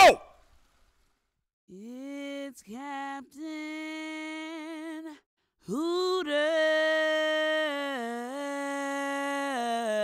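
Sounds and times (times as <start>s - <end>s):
person calling announcer-style: 0.0s - 0.3s.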